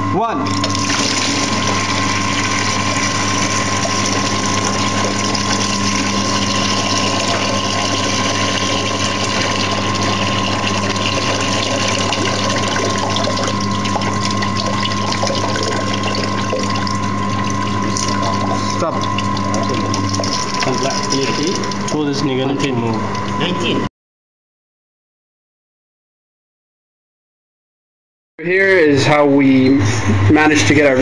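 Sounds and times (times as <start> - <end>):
steady low hum: 0.0 - 23.9, 28.4 - 31.0
water rushing out of tank: 0.5 - 22.3.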